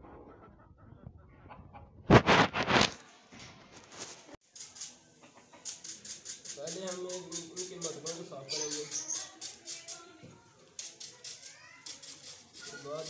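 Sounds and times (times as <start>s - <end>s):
chickens and rooster: 0.0s - 2.0s, 5.1s - 5.8s, 7.4s - 9.4s
sharp flurrying noise: 2.1s - 3.0s, 3.9s - 10.0s
brush scrubbing a clay pot: 5.5s - 9.9s.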